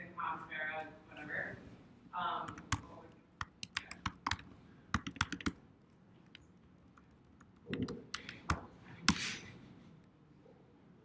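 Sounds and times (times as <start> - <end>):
computer keyboard typing: 2.5 - 5.6, 6.2 - 9.2.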